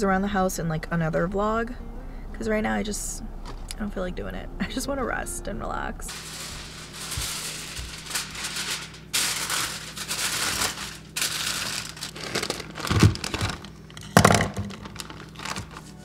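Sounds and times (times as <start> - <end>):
aluminium foil crinkling: 6.1 - 16.0
plastic bag rustling: 6.1 - 16.0.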